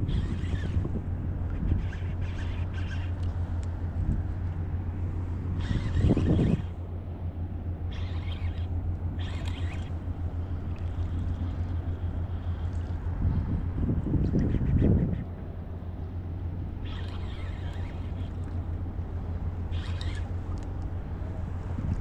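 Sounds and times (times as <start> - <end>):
outboard motor idling: 0.0 - 22.0.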